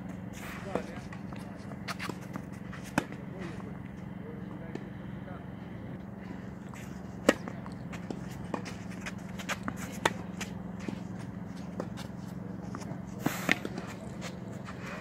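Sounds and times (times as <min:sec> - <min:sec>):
shoes scuffing on clay court: 0:00.0 - 0:04.0, 0:06.4 - 0:15.0
low hum: 0:00.0 - 0:15.0
tennis ball hits and bounces: 0:00.6 - 0:04.0, 0:06.7 - 0:14.7
tennis ball struck on serve: 0:07.2 - 0:12.1.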